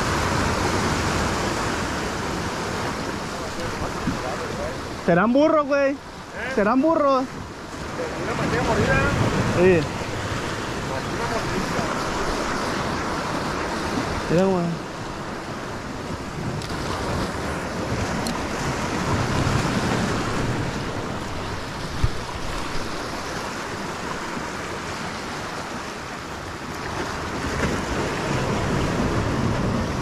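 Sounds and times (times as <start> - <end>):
sea waves breaking over rocks: 0.0 - 30.0
wind buffeting microphone: 6.8 - 30.0.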